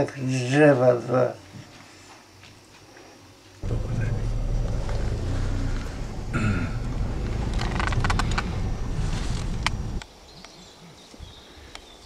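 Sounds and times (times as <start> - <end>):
car rumble on rough track: 3.6 - 10.0
sharp clicks and rattles: 3.6 - 10.0.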